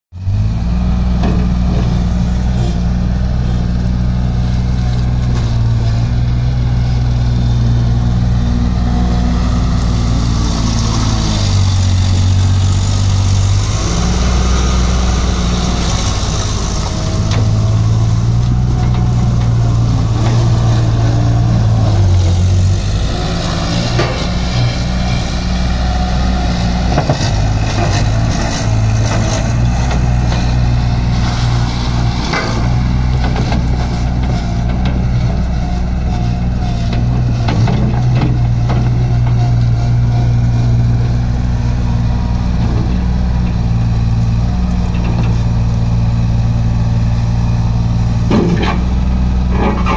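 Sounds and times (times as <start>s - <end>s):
loader diesel engine running: 0.2s - 49.9s.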